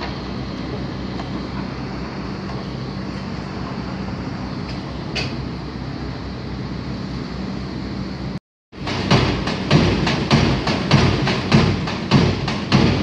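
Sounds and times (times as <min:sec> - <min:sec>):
heavy machinery engine drone: 0:00.0 - 0:13.0.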